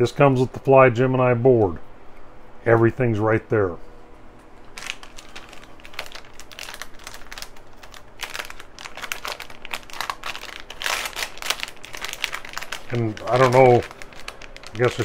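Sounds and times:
plastic bag crinkling: 4.7s - 15.0s.

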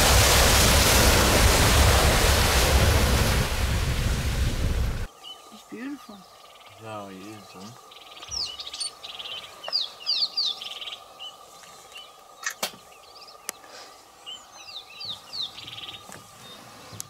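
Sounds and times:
birds singing: 5.1s - 17.0s.

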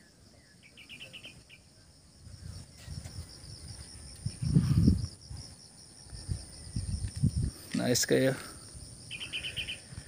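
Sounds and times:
insects trilling: 0.0s - 10.0s
wind buffeting microphone: 2.1s - 7.7s.

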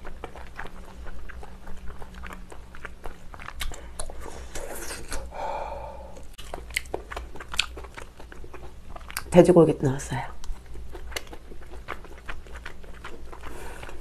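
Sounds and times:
wet chewing mouth sounds: 0.0s - 14.0s
breathy open-mouthed exhale: 5.0s - 6.3s.

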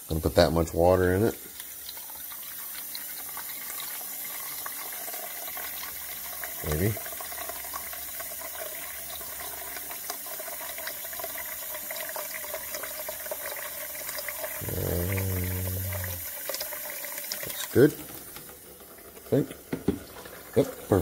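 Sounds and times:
faucet running water: 0.0s - 21.0s
low steady hum: 14.6s - 16.3s.

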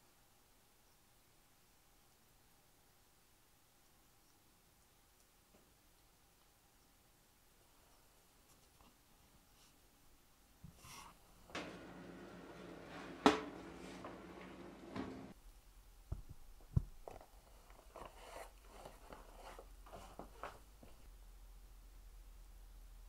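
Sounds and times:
oven electric hum: 11.2s - 15.4s.

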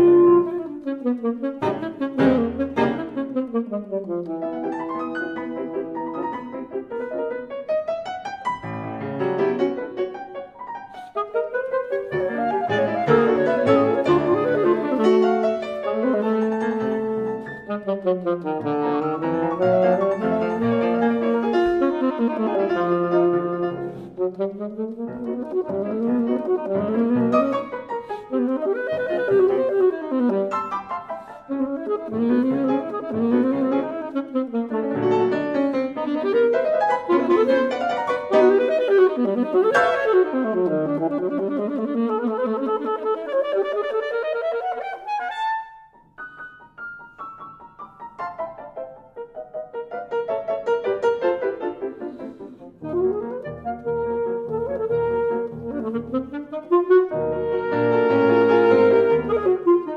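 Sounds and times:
piano playing: 0.0s - 59.9s
alto saxophone runs: 31.5s - 45.1s, 52.8s - 59.9s.

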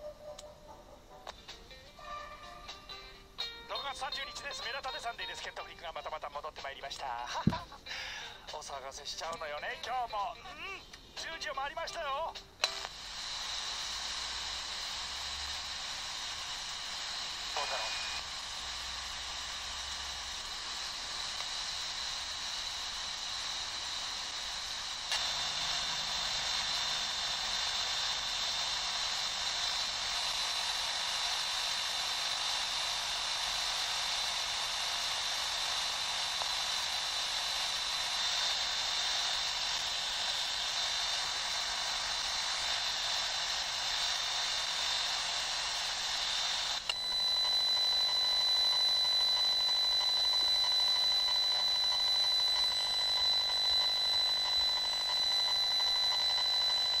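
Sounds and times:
radio static hiss: 3.2s - 57.0s
high-pitched whine: 13.6s - 57.0s.

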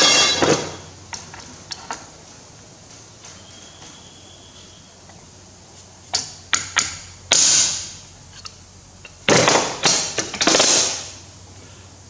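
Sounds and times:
metal clatter: 0.0s - 0.9s
metal scrape: 0.0s - 0.9s.

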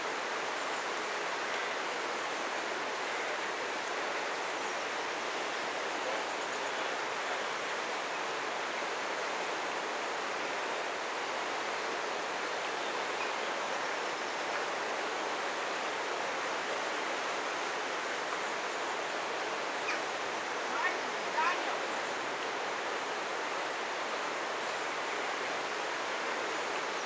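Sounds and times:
running water rushing: 0.0s - 27.0s.

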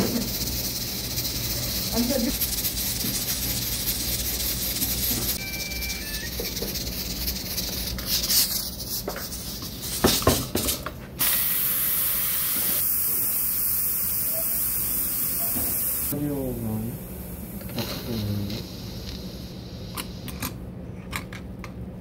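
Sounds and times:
kitchen knocks and clatters: 10.0s - 11.0s
steady loud hiss: 11.2s - 20.3s.

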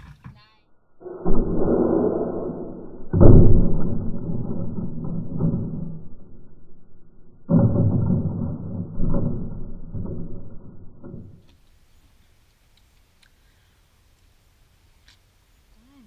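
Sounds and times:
plastic bucket crashing: 7.5s - 11.5s
faint clicks: 12.4s - 13.5s.

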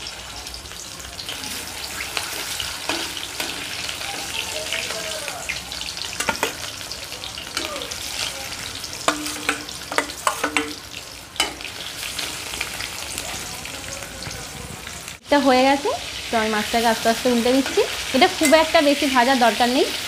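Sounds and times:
fish sizzling in hot oil: 0.0s - 20.0s
metal spatula clinking on pan: 6.2s - 6.7s, 9.0s - 10.8s, 11.4s - 11.7s, 17.6s - 18.8s.

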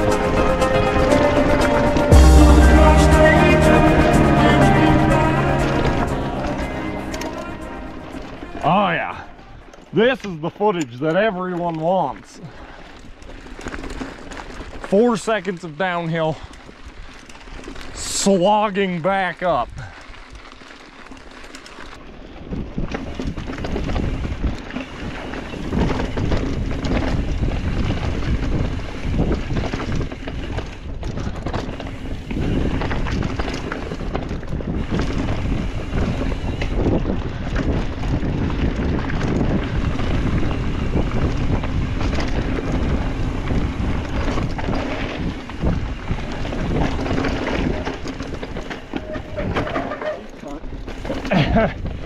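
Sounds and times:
bike rattling on dirt trail: 0.0s - 52.0s
wind buffeting microphone: 22.0s - 52.0s.

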